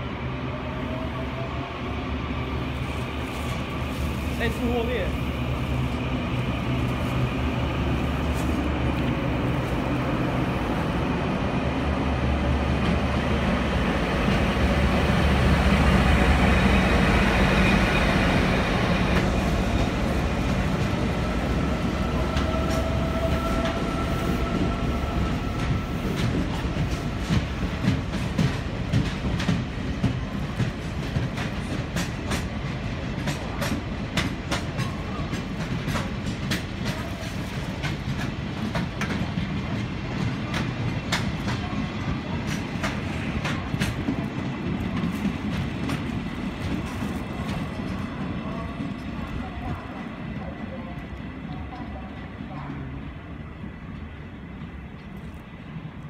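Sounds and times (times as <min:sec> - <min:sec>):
train wheels clacking on rail joints: 0:16.7 - 0:50.6.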